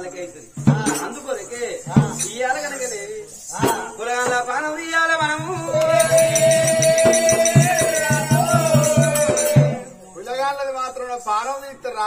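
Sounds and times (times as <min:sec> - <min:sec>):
person singing: 0:03.5 - 0:10.1
hand drum: 0:05.2 - 0:09.9
quick high metallic ticks: 0:05.8 - 0:09.7.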